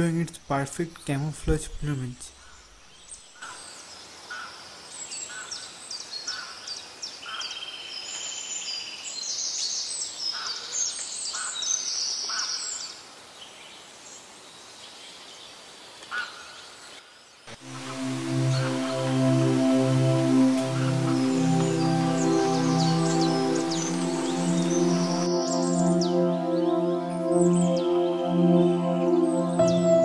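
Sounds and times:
soft background hiss: 0.0 - 4.2.

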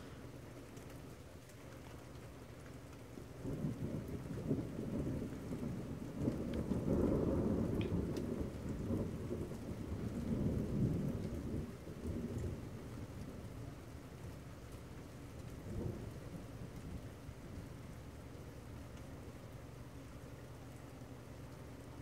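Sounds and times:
rolling thunder rumble: 3.4 - 19.0.

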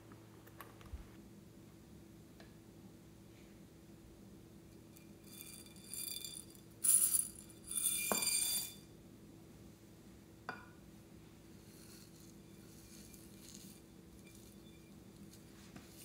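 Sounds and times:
foam beads rattling in ceramic dish: 5.1 - 8.8, 11.6 - 16.0.

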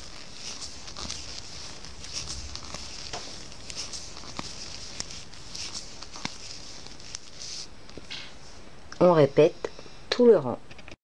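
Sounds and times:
yarn rustling: 0.0 - 7.8.

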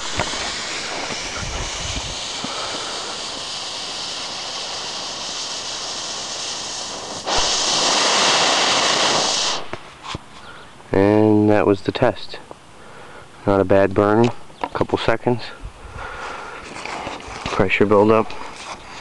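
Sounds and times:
rocket motor thrust roaring hiss: 0.0 - 10.1
fuse hissing: 0.0 - 10.7.

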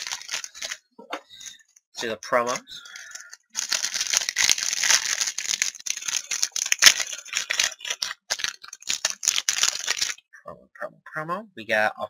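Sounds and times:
plastic wrapper tearing and crinkling: 0.0 - 0.8, 2.4 - 10.2.

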